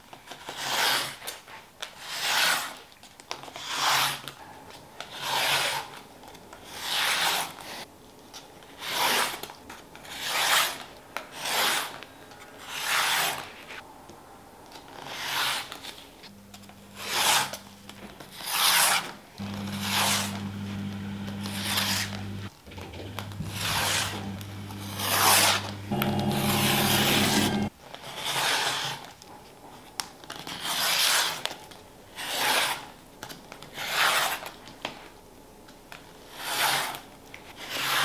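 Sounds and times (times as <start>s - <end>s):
rotary cutter rasping through fabric: 17.0s - 17.7s, 18.4s - 27.7s.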